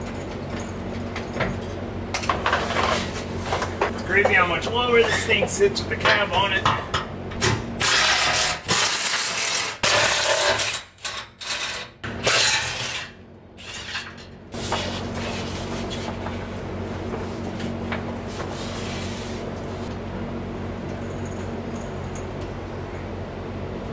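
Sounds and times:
steady low hum: 0:00.0 - 0:10.1, 0:12.0 - 0:23.9
power tool bursts on bolts: 0:07.8 - 0:13.1.

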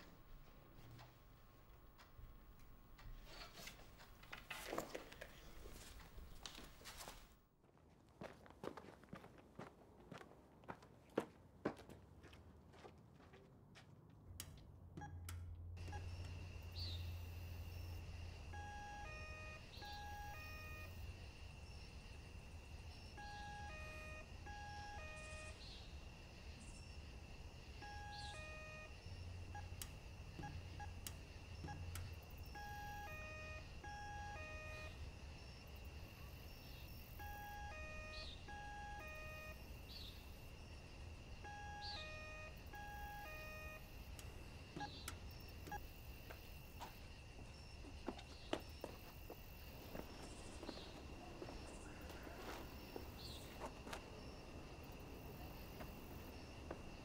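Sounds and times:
electronic beeps in a tune: 0:18.5 - 0:21.0, 0:23.2 - 0:25.6, 0:32.6 - 0:35.0, 0:37.2 - 0:39.6, 0:41.4 - 0:43.9.

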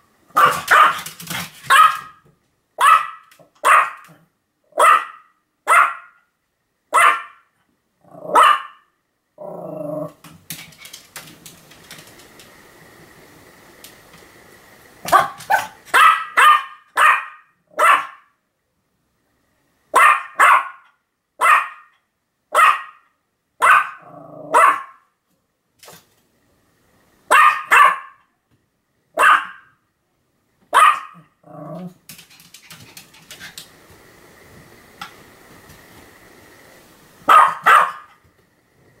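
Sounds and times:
small dog barking: 0:00.3 - 0:02.2, 0:02.8 - 0:06.3, 0:06.9 - 0:07.5, 0:08.2 - 0:08.9, 0:15.0 - 0:18.4, 0:19.9 - 0:25.1, 0:27.3 - 0:28.3, 0:29.1 - 0:29.8, 0:30.7 - 0:31.8, 0:37.2 - 0:38.2
dog growling: 0:08.0 - 0:08.4, 0:09.4 - 0:10.2, 0:24.0 - 0:24.6, 0:31.4 - 0:32.0.

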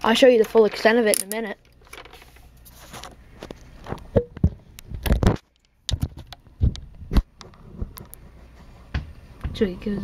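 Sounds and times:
plastic toy clicks and knocks: 0:00.3 - 0:02.2.

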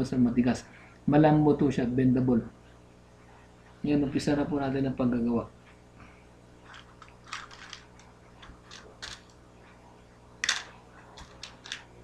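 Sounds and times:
fishing hooks rattling in tackle box: 0:06.7 - 0:08.0, 0:08.6 - 0:09.3.

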